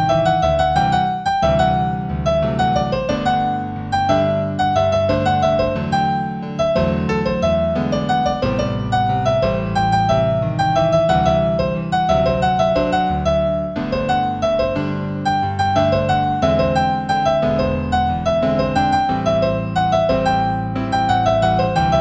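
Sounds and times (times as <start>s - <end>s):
solo piano piece: 0.0s - 22.0s.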